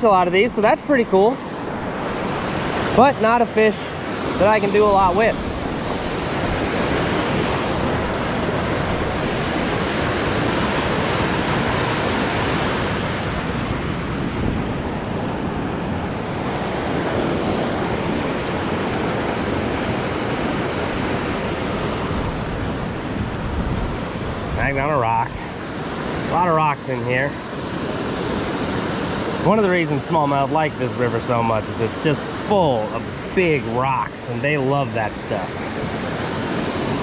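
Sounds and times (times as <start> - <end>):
river rushing: 0.0 - 37.0.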